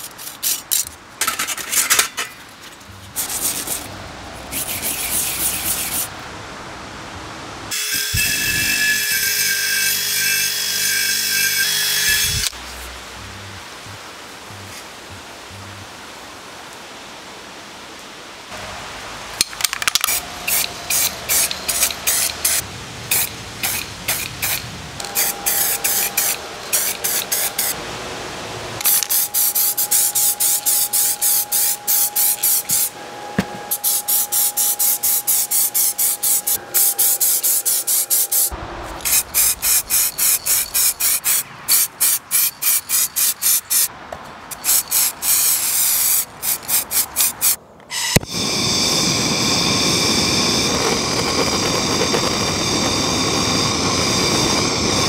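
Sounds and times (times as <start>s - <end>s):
aerosol spray paint spraying: 4.5s - 6.1s, 20.0s - 27.8s, 28.8s - 32.9s, 33.7s - 43.9s, 44.5s - 47.6s
thin steady whistle: 7.7s - 12.5s, 25.0s - 27.8s, 28.8s - 41.2s, 47.9s - 55.0s.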